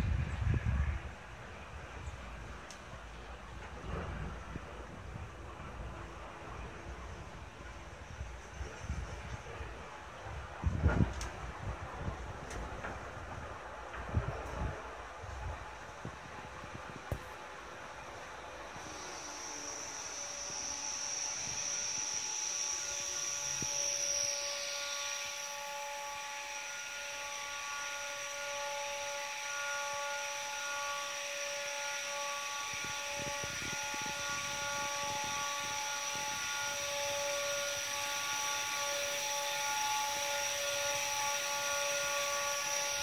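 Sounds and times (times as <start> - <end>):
funicular whine and hiss: 0.0 - 43.0
high whistle: 18.8 - 43.0.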